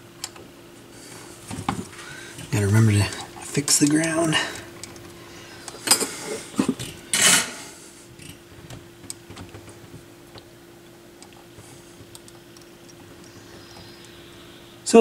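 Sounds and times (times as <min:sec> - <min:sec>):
faint steady hum: 0:00.0 - 0:15.0
wiring clicking and rustling: 0:01.4 - 0:07.4, 0:08.2 - 0:13.9.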